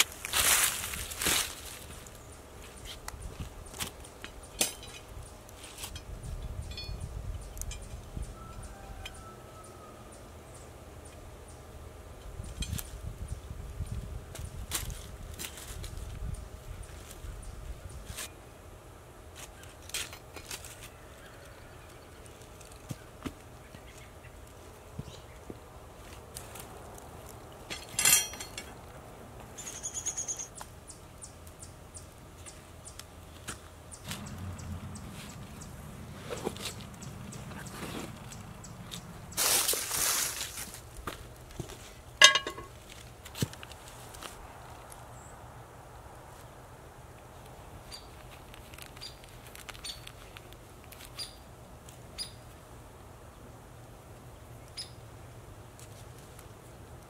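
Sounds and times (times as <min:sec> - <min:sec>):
iron grate rods clattering: 0:04.4 - 0:07.9, 0:27.7 - 0:28.8, 0:42.2 - 0:42.8
short high metallic ring: 0:42.2 - 0:42.7.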